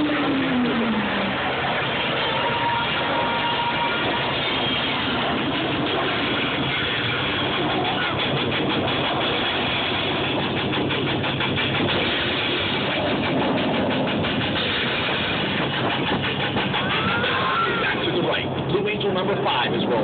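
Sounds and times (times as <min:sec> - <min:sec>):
jet engines roaring overhead: 0:00.0 - 0:20.0
jet noise crackle: 0:00.0 - 0:20.0.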